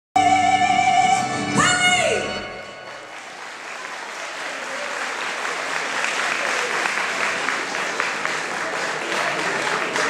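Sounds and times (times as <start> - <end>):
audience applause: 2.8 - 10.0.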